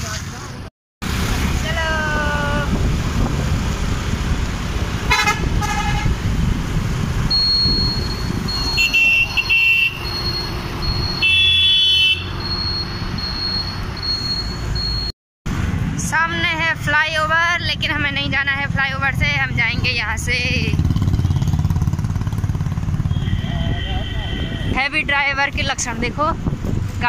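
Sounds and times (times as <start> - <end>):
wind noise: 1.4 - 10.3, 23.2 - 27.0
vehicle horns honking: 5.1 - 6.2, 7.6 - 12.5, 23.0 - 24.8
high repeating beep: 7.3 - 11.8, 12.4 - 15.1
motorcycle engine: 18.6 - 24.7.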